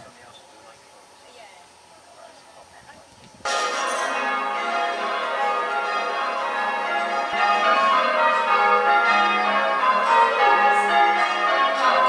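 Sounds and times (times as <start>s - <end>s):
church bells ringing: 3.5s - 12.0s.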